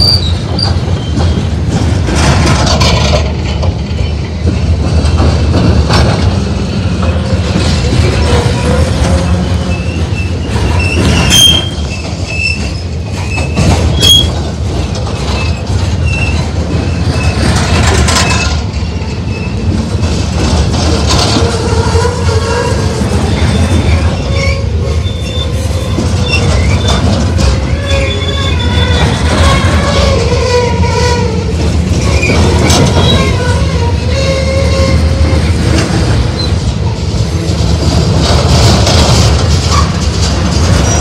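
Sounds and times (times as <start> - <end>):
high-pitched wheel squeal: 0.0 - 1.4, 8.2 - 14.3, 21.6 - 27.0, 27.6 - 31.3
train wheels rumbling on rail: 0.0 - 41.0.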